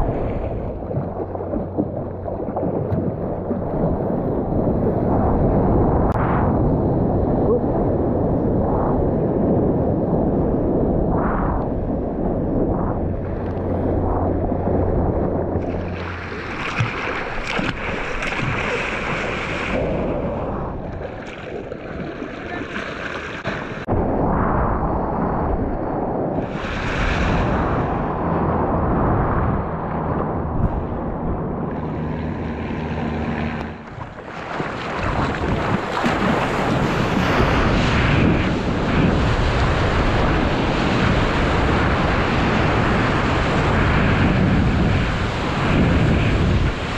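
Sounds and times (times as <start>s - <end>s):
sea water rushing and sloshing: 0.0s - 46.9s
wind buffeting microphone: 0.0s - 46.9s
breaking whitewater: 12.9s - 23.9s, 30.6s - 46.9s.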